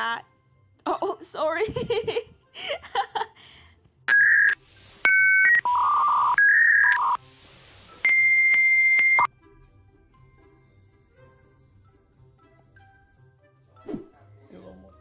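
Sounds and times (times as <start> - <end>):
electronic beeps at changing pitches: 4.1 - 7.2, 8.0 - 9.3
long high beep: 8.0 - 9.3.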